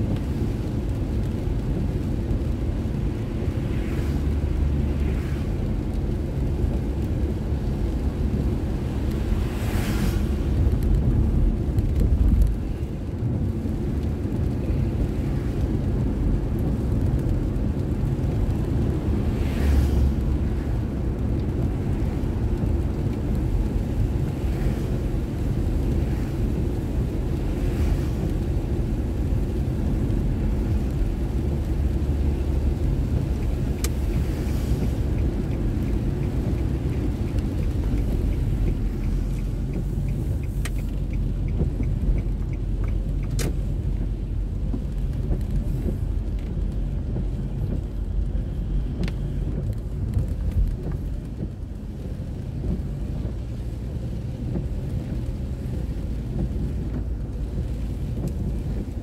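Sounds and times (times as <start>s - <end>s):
engine and tyre rumble: 0.0s - 59.0s
light even ticks: 31.8s - 58.9s.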